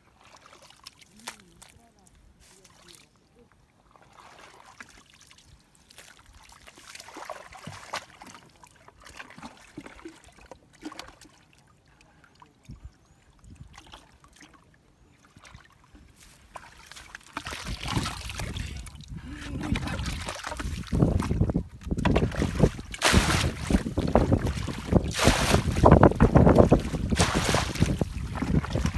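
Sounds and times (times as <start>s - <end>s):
muddy water dripping and trickling: 0.0s - 28.9s
hands scooping mud: 0.2s - 3.2s, 4.0s - 10.2s, 16.0s - 28.9s
water rushing from tipped bucket: 17.3s - 19.0s, 19.6s - 28.9s.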